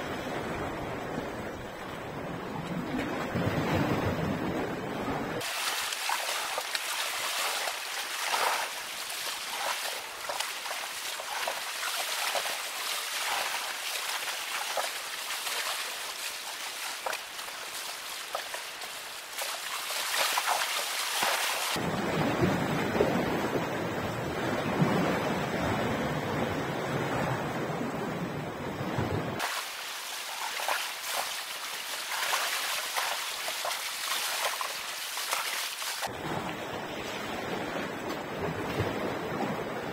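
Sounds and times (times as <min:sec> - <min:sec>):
waves splashing on rocks: 0:05.4 - 0:21.8.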